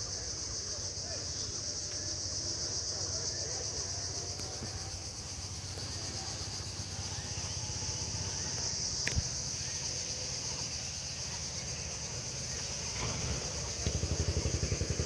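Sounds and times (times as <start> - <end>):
insects droning chorus: 0.0 - 15.0
sharp click: 9.0 - 9.3.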